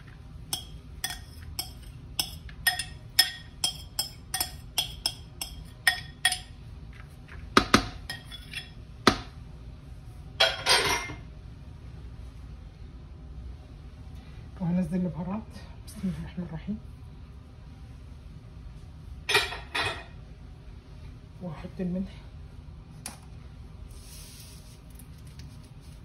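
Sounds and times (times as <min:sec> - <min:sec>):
spoon scraping bowl: 0:00.0 - 0:07.4, 0:08.1 - 0:08.8
spoon clinking against bowl: 0:00.5 - 0:06.6, 0:08.1 - 0:08.8.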